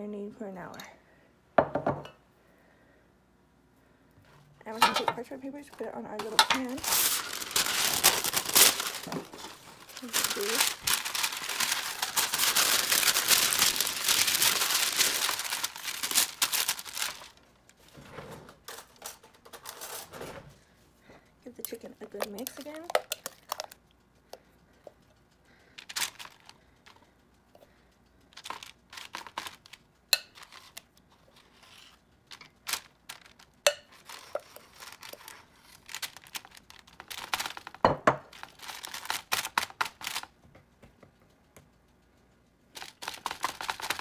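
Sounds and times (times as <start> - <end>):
parchment paper crinkling: 5.5 - 17.9, 25.8 - 27.0, 28.3 - 40.3, 42.8 - 44.0.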